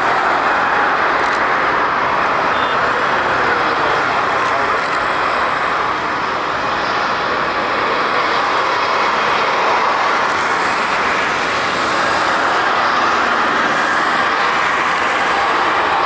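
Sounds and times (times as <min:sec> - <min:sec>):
jet engines running: 0:00.0 - 0:16.0.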